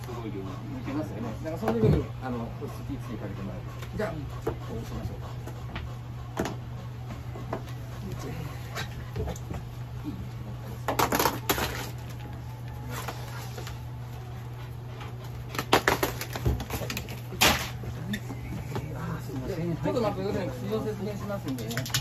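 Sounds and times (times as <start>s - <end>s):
steady low hum: 0.0s - 22.0s
dog claws clicking and clattering: 21.2s - 22.0s.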